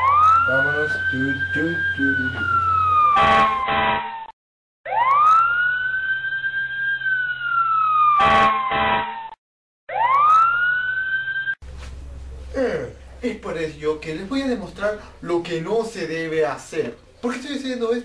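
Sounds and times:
wailing siren: 0:00.0 - 0:04.3, 0:04.9 - 0:11.6.

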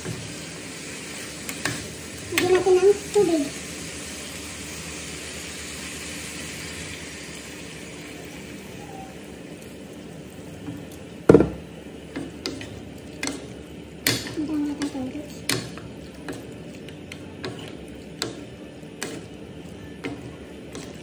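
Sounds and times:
spatulas clacking against pan: 0:12.1 - 0:19.3, 0:20.0 - 0:21.0.

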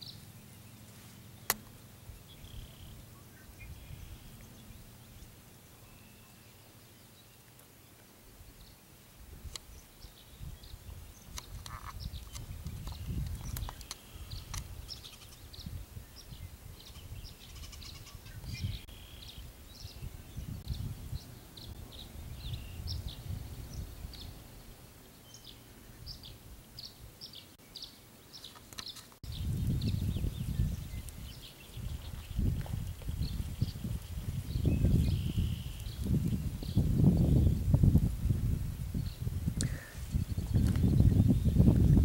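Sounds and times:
wind buffeting microphone: 0:09.2 - 0:24.8, 0:29.2 - 0:42.0
high bird chirps: 0:33.2 - 0:36.0.

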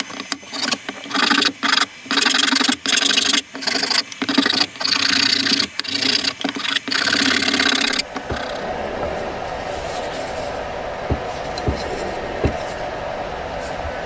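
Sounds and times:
file rasping on wood: 0:00.0 - 0:08.5.

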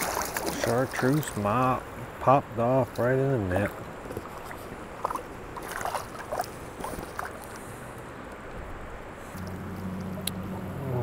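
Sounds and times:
small splashes and drips: 0:00.0 - 0:01.4, 0:02.9 - 0:07.7
creek water sloshing: 0:00.0 - 0:11.0.

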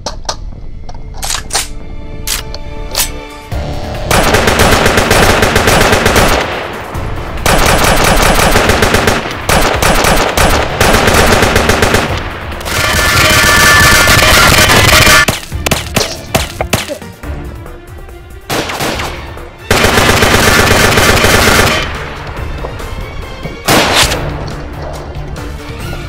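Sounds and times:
automatic machine-gun fire: 0:04.1 - 0:06.5, 0:07.4 - 0:12.1, 0:12.7 - 0:15.3, 0:19.7 - 0:21.9.

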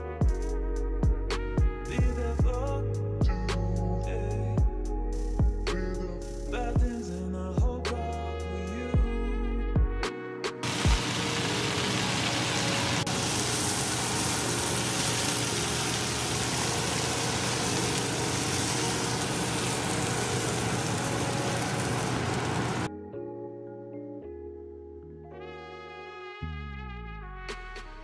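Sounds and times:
background music: 0:00.0 - 0:28.0
vegetables sizzling in frying pan: 0:10.6 - 0:22.9.

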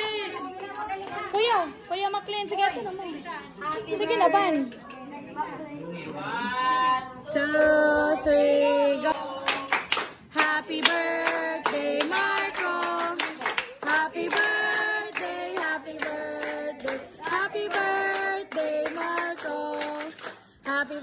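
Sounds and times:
people clapping along: 0:00.0 - 0:02.6, 0:04.0 - 0:04.9, 0:09.1 - 0:21.0
group singing birthday song: 0:05.8 - 0:21.0.

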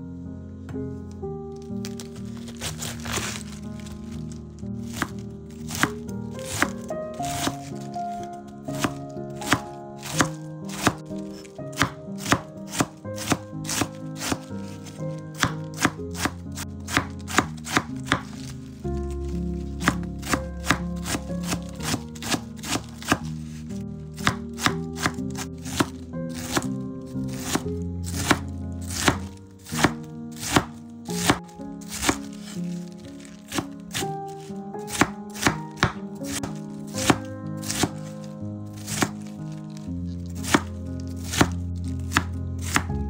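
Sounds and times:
background music: 0:00.0 - 0:43.0
knife chopping on cutting board: 0:04.9 - 0:07.9, 0:08.8 - 0:11.0, 0:11.7 - 0:14.8, 0:15.4 - 0:18.4, 0:19.8 - 0:23.3, 0:24.2 - 0:26.7, 0:27.3 - 0:32.6, 0:33.4 - 0:38.1, 0:38.8 - 0:39.3, 0:40.4 - 0:42.9.

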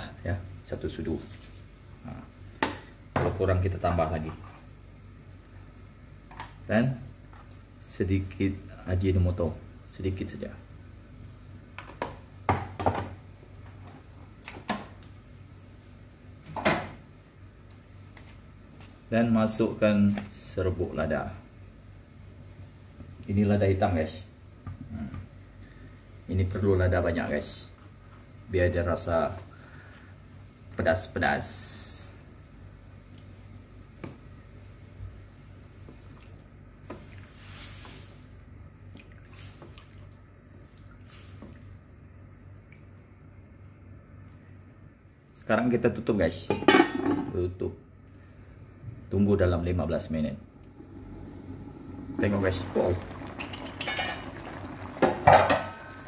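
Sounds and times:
low steady hum: 0:00.0 - 0:56.0
liquid swishing and sloshing: 0:36.0 - 0:41.9.

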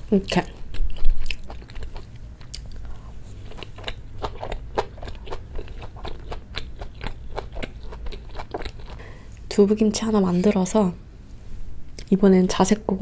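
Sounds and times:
close chewing with mouth clicks: 0:00.2 - 0:09.1.

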